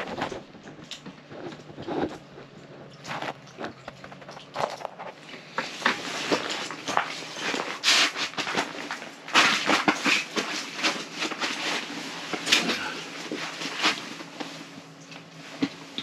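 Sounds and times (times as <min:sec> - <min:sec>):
nylon suit rustling: 0:03.0 - 0:16.0
boots crunching on slushy ice: 0:04.2 - 0:14.3.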